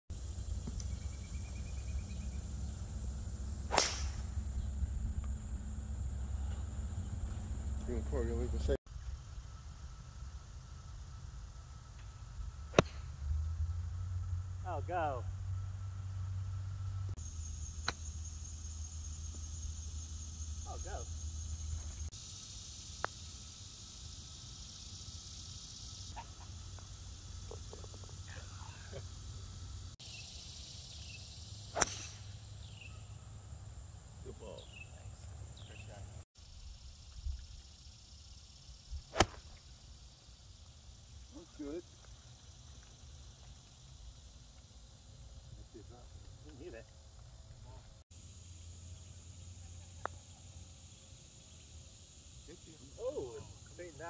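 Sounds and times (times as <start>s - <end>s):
high insect drone: 0.1s - 54.0s
golf club striking ball: 3.6s - 4.4s, 31.8s - 32.4s, 39.1s - 39.6s
putter striking golf ball: 31.8s - 32.2s.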